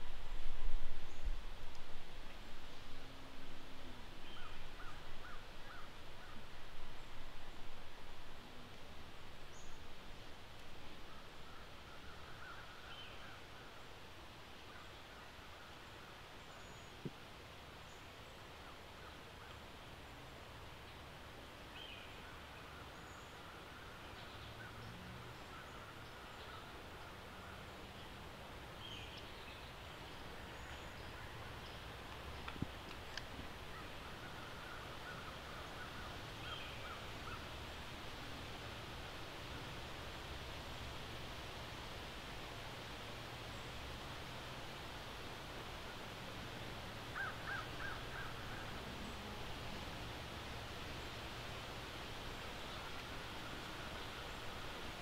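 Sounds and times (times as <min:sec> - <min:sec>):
faint sharp clicks: 0:01.7 - 0:02.4, 0:31.7 - 0:33.5.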